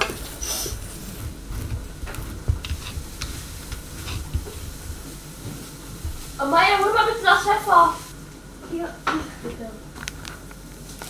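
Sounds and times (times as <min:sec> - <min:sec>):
food sizzling hiss: 0:00.2 - 0:01.2, 0:02.8 - 0:08.6.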